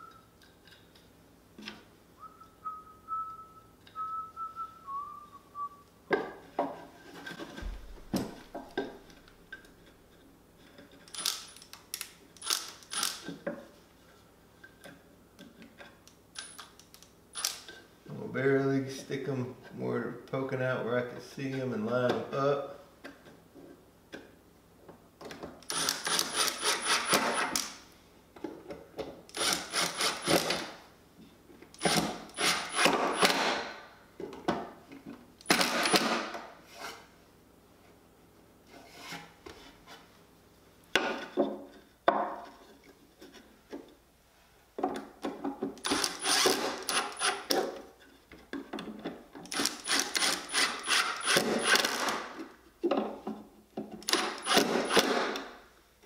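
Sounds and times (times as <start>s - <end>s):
impact driver driving screws: 12.4s - 13.4s, 25.6s - 27.7s, 29.3s - 30.7s, 31.8s - 33.8s, 35.4s - 36.4s, 45.8s - 47.6s, 49.5s - 52.4s, 54.0s - 55.5s.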